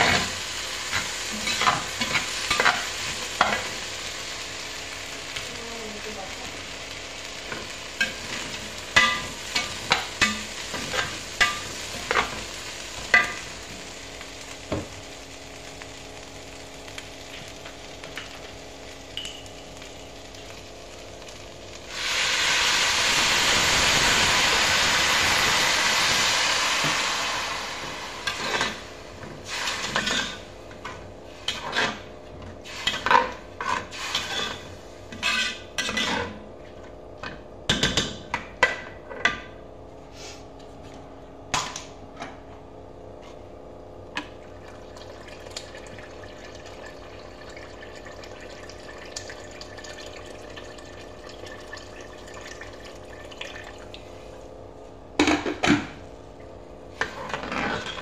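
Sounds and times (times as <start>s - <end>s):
water pouring into a pot: 15.1s - 30.4s, 44.2s - 54.4s
metal spoon scraping a pot: 32.9s - 36.3s.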